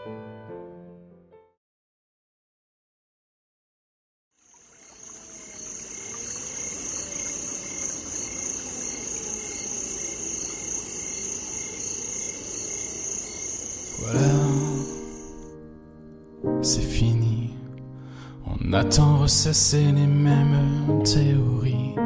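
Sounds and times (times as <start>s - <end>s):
crickets chirring: 4.4s - 16.2s.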